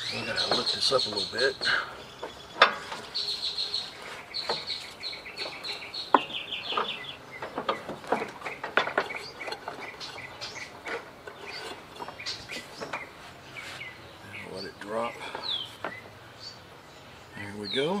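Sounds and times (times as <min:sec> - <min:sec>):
knocks and clanks from mower: 0:00.0 - 0:13.1
birds chirping: 0:00.0 - 0:18.0.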